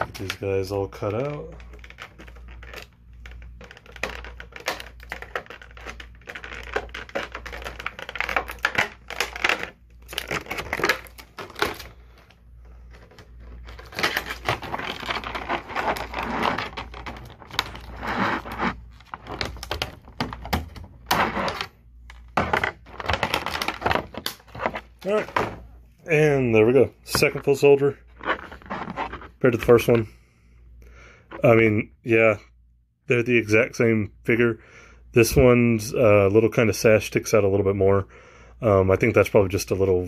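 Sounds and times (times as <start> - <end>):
plastic packaging crinkling: 0.0 - 30.0.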